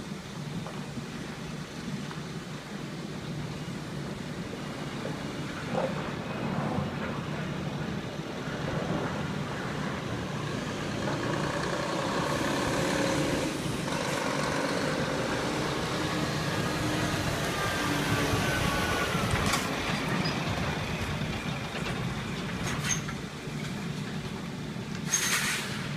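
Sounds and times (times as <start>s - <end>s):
lorry diesel engine accelerating: 6.9s - 25.9s
brief sharp noises: 25.1s - 25.9s.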